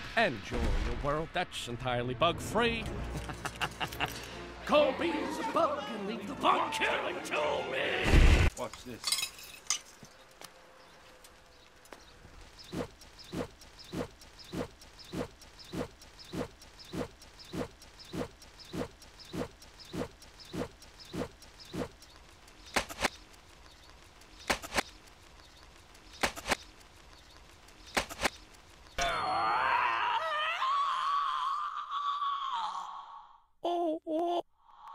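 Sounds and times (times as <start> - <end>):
sharp double clicks: 12.4 - 29.0
man crying out: 29.0 - 32.9, 33.6 - 34.4.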